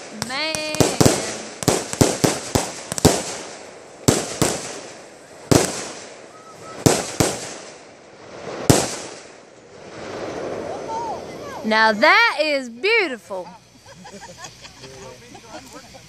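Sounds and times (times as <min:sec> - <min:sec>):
fireworks banging with echo: 0:00.0 - 0:11.7.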